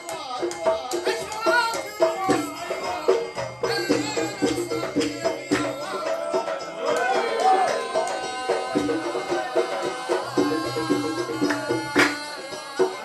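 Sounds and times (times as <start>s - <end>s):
shaker-like percussion: 0.0s - 13.0s.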